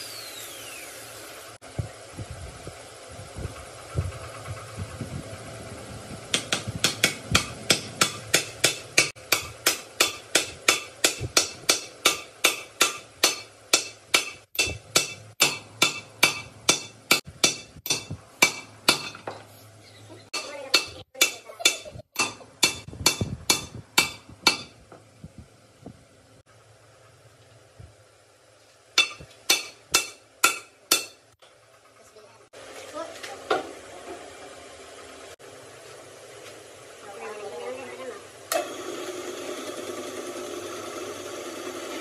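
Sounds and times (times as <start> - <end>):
hammer striking metal: 6.3 - 19.4, 20.4 - 24.8, 29.0 - 31.2.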